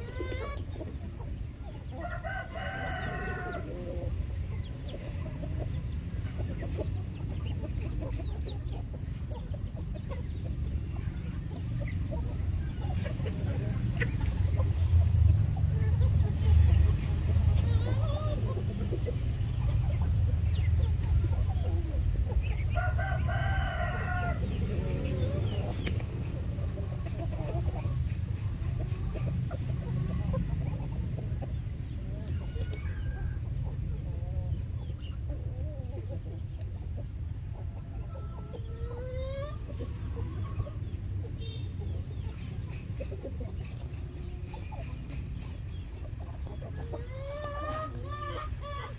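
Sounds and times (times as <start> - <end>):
chickens clucking: 0.0 - 48.9
rooster crowing: 2.0 - 3.8, 22.8 - 25.4.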